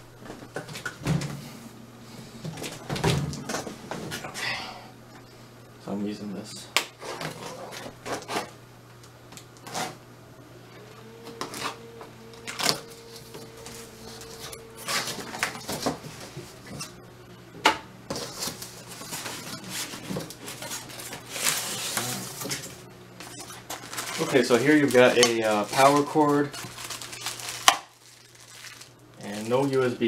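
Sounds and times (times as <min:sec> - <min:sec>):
cardboard box being unpacked: 0:18.1 - 0:29.9.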